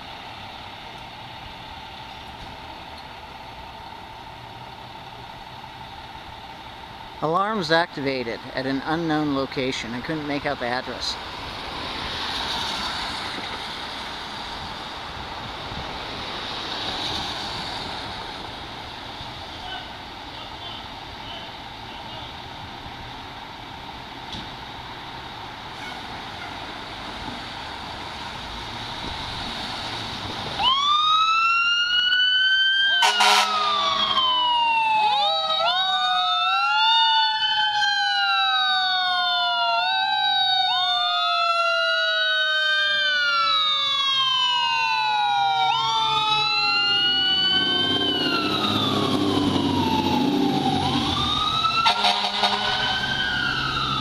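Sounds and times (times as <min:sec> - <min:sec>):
fire truck engine rumbling: 0:00.0 - 0:54.0
fire truck sirens wailing: 0:00.0 - 0:54.0
street noise: 0:00.0 - 0:54.0
air horn blast: 0:33.0 - 0:34.2, 0:51.8 - 0:53.0.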